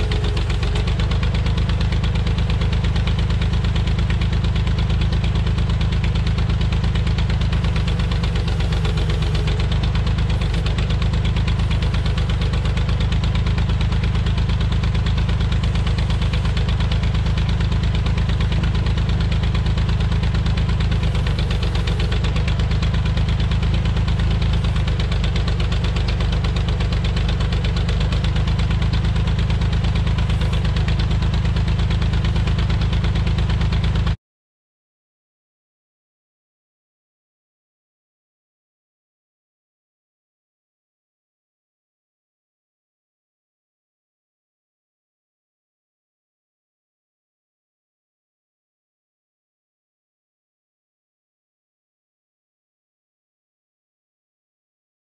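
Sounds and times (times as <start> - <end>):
tractor engine idling: 0.0 - 34.2.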